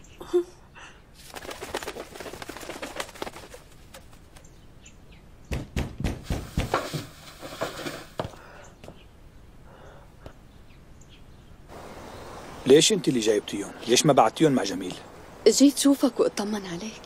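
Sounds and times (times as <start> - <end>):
rustling: 1.2 - 4.6, 6.2 - 8.4
thuds on wooden floorboards: 5.5 - 7.1
ropes creaking on wooden chair: 6.6 - 9.0.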